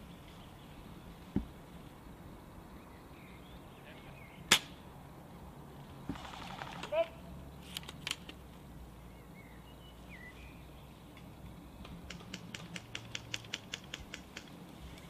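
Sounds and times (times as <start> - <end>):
airsoft gun shots: 4.5 - 4.8
faint bird chirps: 9.0 - 11.0.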